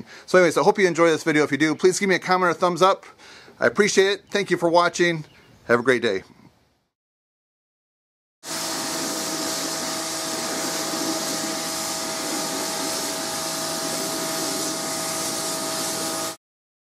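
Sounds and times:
pressure washer spraying water: 0:08.4 - 0:16.4.

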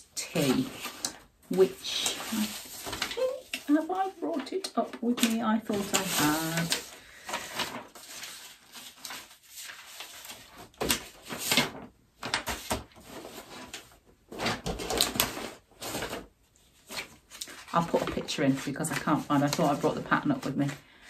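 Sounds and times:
paper rustling and shuffling: 0:00.0 - 0:21.0.

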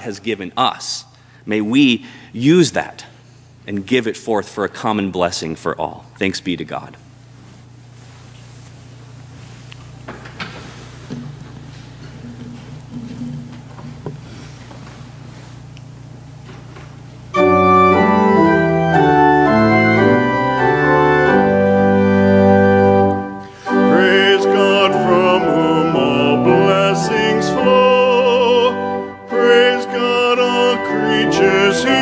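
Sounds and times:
pipe organ chords: 0:17.1 - 0:32.0
person singing with vibrato: 0:23.4 - 0:32.0.

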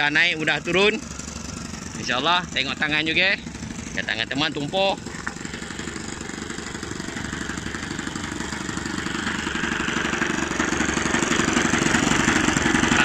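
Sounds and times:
model aircraft engine running: 0:00.0 - 0:13.0.

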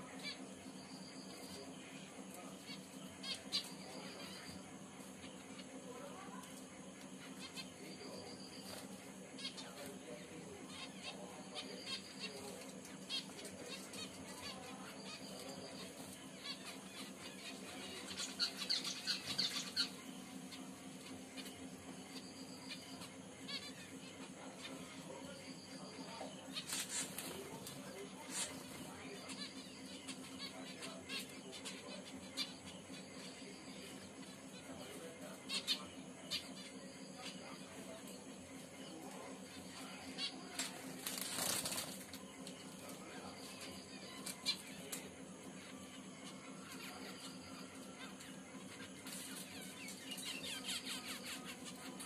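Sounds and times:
finches chirping: 0:00.0 - 0:52.0.

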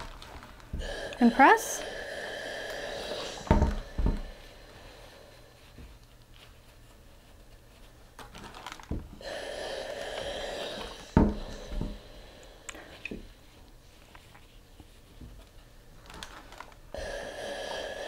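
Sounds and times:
steam iron hissing: 0:00.7 - 0:05.9, 0:09.2 - 0:13.4, 0:16.9 - 0:18.0.

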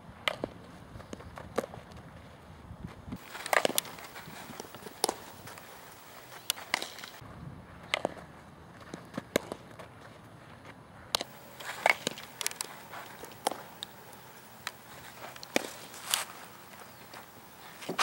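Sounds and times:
outdoor background hiss: 0:00.0 - 0:18.0
softball hit and caught in gloves: 0:04.8 - 0:05.3, 0:09.2 - 0:09.6, 0:15.4 - 0:16.2.

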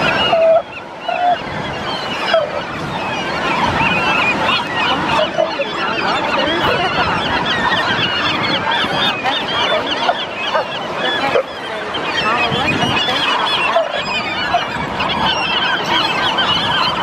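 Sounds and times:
gulls squawking: 0:00.0 - 0:17.0.

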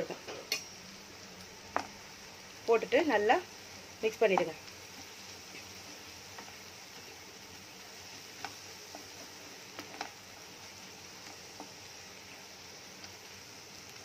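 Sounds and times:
food hissing on low heat: 0:00.0 - 0:14.0
spatula tapping a pan: 0:01.7 - 0:02.0, 0:08.4 - 0:10.2.

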